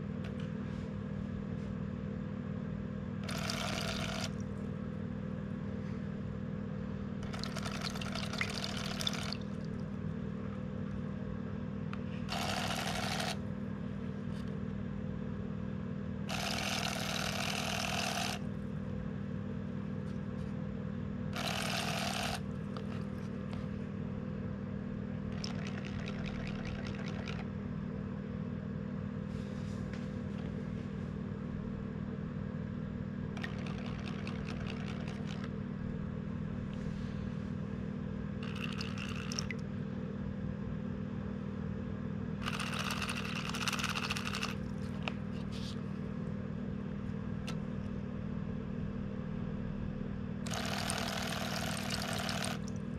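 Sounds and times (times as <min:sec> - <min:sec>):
steady low hum: 0:00.0 - 0:52.9
motorized lure splashing water: 0:03.2 - 0:04.7, 0:07.2 - 0:10.0, 0:12.3 - 0:13.5, 0:16.3 - 0:18.5, 0:21.3 - 0:23.6, 0:25.3 - 0:27.5, 0:33.4 - 0:35.6, 0:38.4 - 0:39.7, 0:42.4 - 0:45.1, 0:50.4 - 0:52.9.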